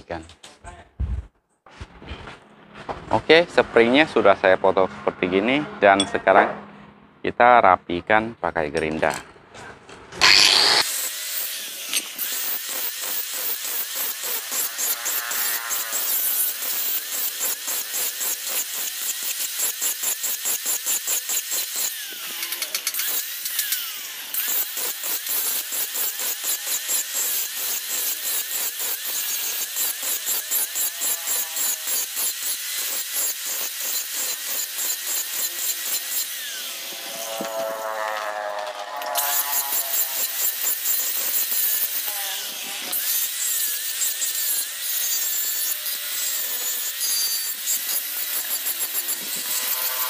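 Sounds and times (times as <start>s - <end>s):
angle grinder grinding steel: 10.2s - 50.0s.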